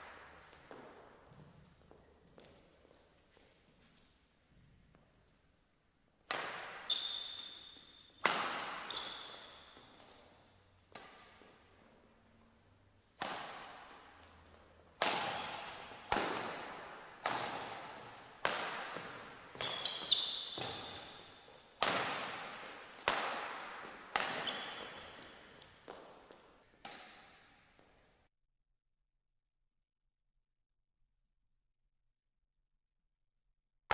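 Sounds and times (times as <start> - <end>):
rackets striking shuttlecock: 0.0 - 1.2, 6.2 - 11.8, 13.2 - 27.5
sneakers squeaking on court: 0.0 - 3.0, 6.5 - 11.8, 15.1 - 27.4.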